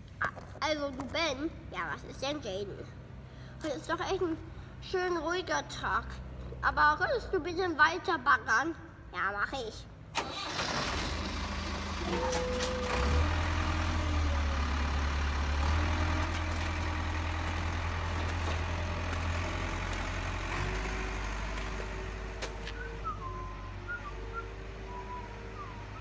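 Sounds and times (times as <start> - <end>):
heavy machine engine rumbling: 10.5 - 26.0.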